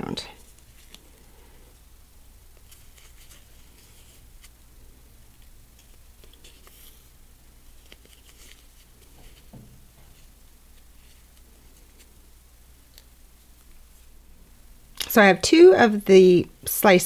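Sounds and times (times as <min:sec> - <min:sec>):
low steady hum: 0:00.0 - 0:17.0
fabric rustling: 0:02.6 - 0:12.2.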